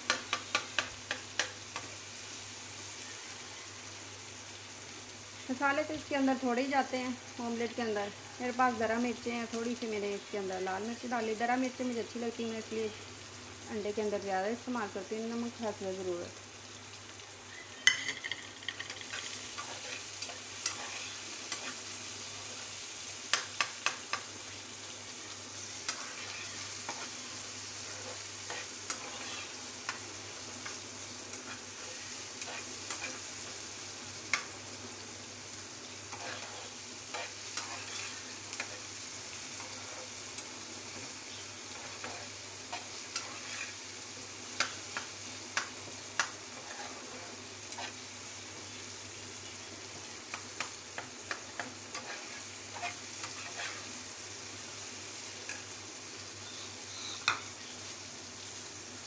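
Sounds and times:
food sizzling in a frying pan: 0.0s - 59.0s
metal spatula scraping a pan: 17.9s - 21.8s, 25.9s - 27.2s, 27.8s - 29.6s, 31.5s - 33.2s, 36.1s - 38.8s, 41.7s - 43.8s, 46.6s - 48.0s, 51.3s - 53.9s.

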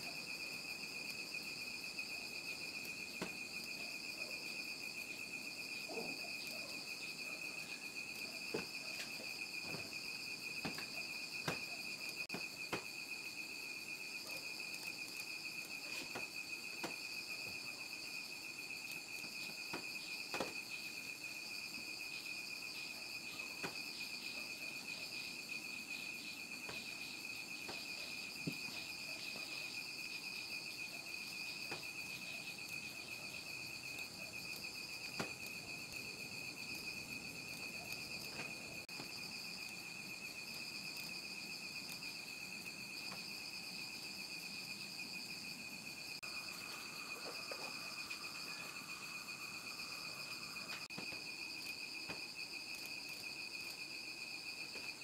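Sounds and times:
crickets trilling: 0.0s - 55.0s.

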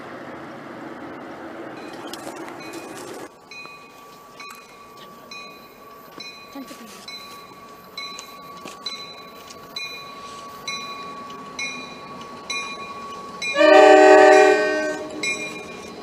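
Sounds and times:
locomotive bell ringing: 1.8s - 16.0s
locomotive air horn blast: 13.5s - 15.4s.

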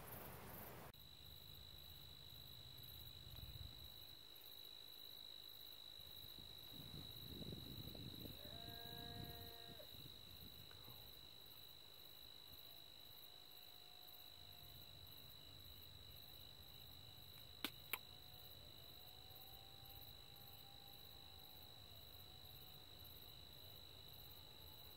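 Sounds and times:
sharp clicks: 17.6s - 18.1s.

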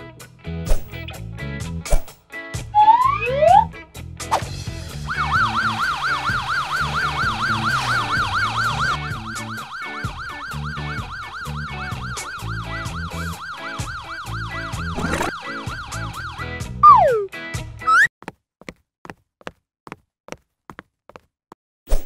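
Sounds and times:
background music: 0.0s - 18.0s
fire truck siren warbling: 2.7s - 3.7s, 5.0s - 17.3s.

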